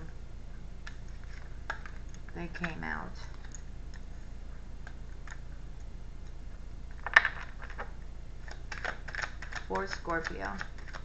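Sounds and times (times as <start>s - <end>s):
cards being shuffled: 7.0s - 11.0s.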